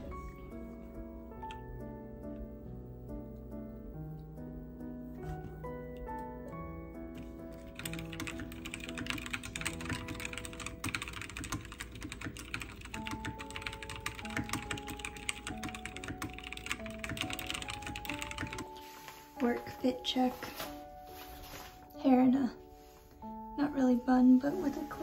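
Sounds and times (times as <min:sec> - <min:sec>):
soft background music: 0:00.0 - 0:25.0
fast keyboard typing: 0:07.2 - 0:18.7.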